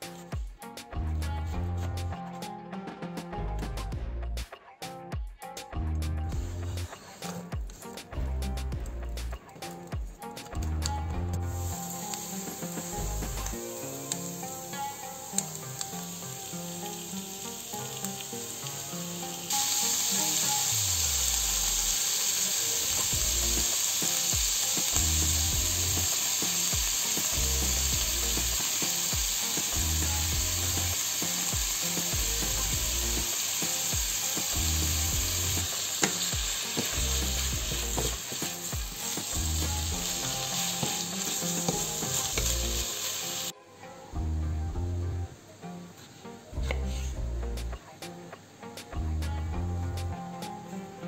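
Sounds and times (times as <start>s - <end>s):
meat sizzling in a frying pan: 11.5s - 43.5s.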